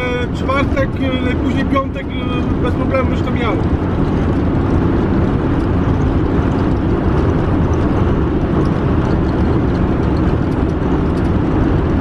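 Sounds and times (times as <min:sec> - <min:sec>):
vehicle cabin road and engine drone: 0:00.0 - 0:12.0.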